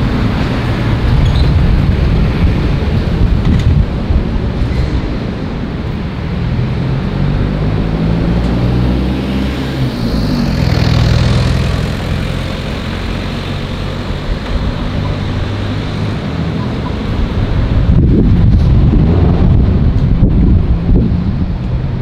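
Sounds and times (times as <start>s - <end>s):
wind buffeting microphone: 0.0s - 8.4s, 13.9s - 22.0s
road traffic passing: 0.0s - 22.0s.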